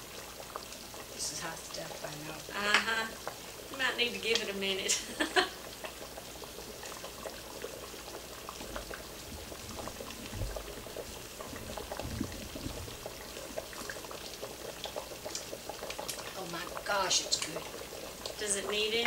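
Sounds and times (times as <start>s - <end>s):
stockpot boiling with bubbling pops: 0.0s - 19.0s
low bumps: 8.8s - 13.4s.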